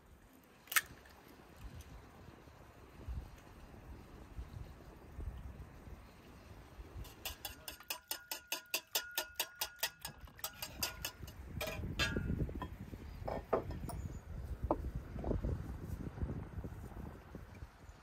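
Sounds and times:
whisk clicking against bowl: 7.0 - 11.5.

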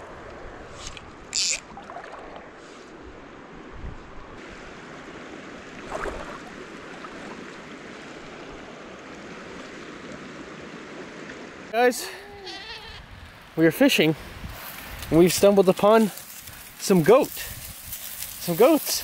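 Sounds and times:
creek water flowing over rocks: 4.4 - 12.3.

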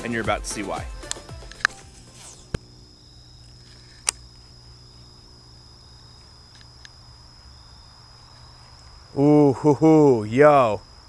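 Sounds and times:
crickets trilling: 0.0 - 11.0
sharp click: 1.0 - 1.8
low outdoor hum: 1.0 - 11.0.

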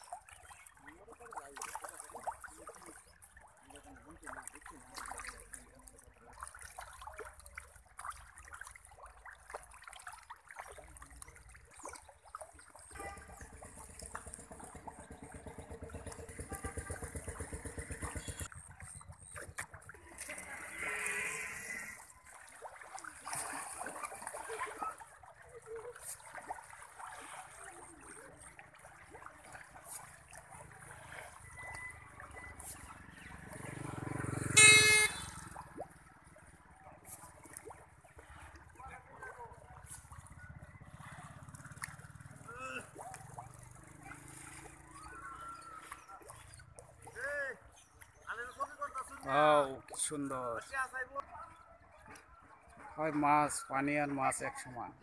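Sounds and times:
fish splashing in pond: 0.0 - 50.3
engine with regular beat: 12.9 - 19.8.

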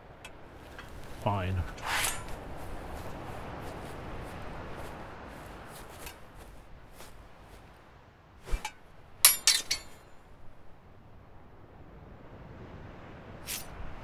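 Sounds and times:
steel swords clashing: 1.7 - 2.3, 8.5 - 10.1.

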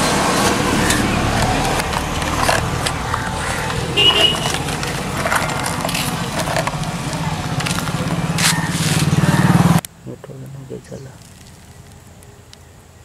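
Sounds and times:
low motor hum: 0.0 - 9.8
plastic pieces clicking and rattling: 0.9 - 9.1.

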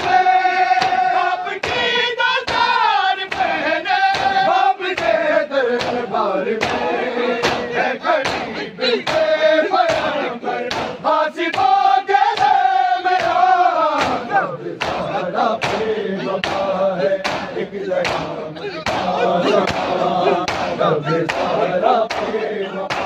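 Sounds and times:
crowd of men chanting: 0.0 - 23.0
chest slaps: 10.7 - 11.7, 14.0 - 18.3.

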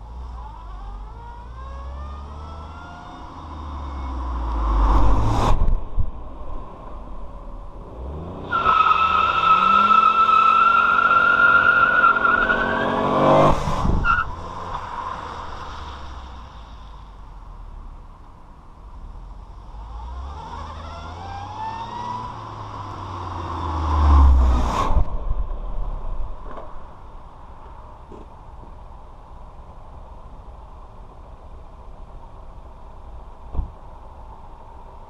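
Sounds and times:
car accelerating past: 1.6 - 6.0, 19.8 - 25.1.

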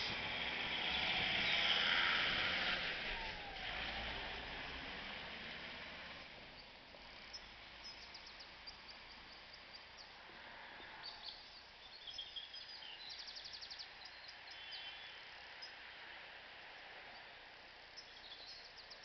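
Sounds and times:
small birds chirping: 0.0 - 2.1, 6.5 - 19.0
outdoor background noise: 0.0 - 19.0.

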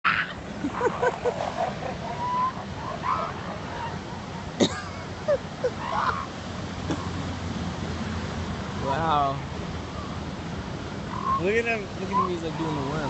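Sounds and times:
elephant seals calling: 0.1 - 4.5, 5.6 - 6.3, 11.0 - 13.0
surf washing: 0.1 - 13.0.

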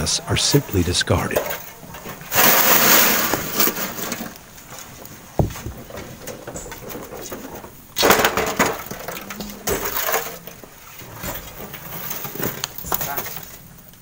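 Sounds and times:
stone knocks: 5.4 - 5.9.

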